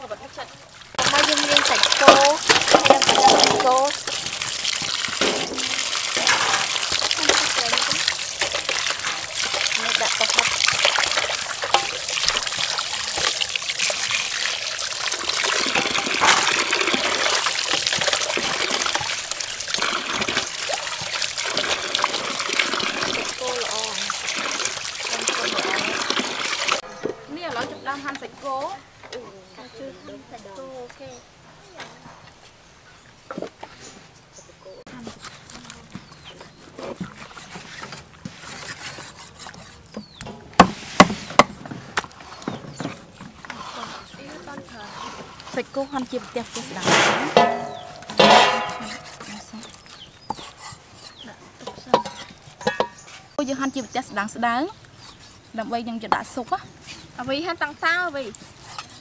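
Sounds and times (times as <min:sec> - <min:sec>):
water pouring into metal basin: 0:00.8 - 0:26.8, 0:45.3 - 0:49.2.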